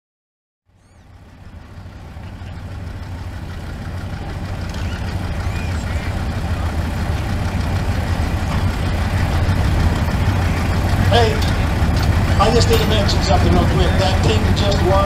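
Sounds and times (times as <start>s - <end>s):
tractor engine idling: 0.7s - 15.0s.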